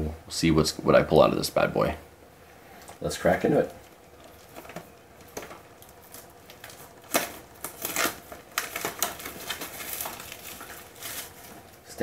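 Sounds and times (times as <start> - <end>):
cellophane crinkling and tearing: 2.9 - 12.0.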